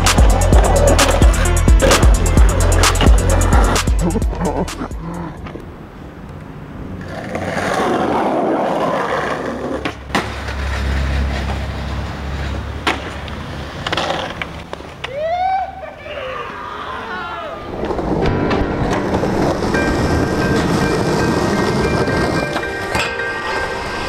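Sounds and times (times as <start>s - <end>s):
skateboard wheels rolling on asphalt: 0.0s - 4.1s, 5.2s - 24.0s
skateboard clacks: 7.0s - 15.2s.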